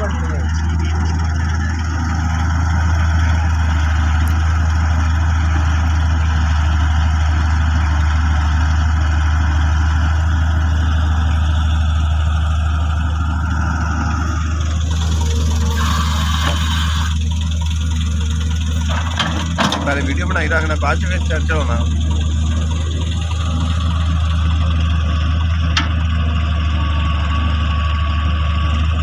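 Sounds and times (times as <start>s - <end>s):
diesel engines humming: 0.0s - 29.0s
excavator loading soil: 10.3s - 24.6s.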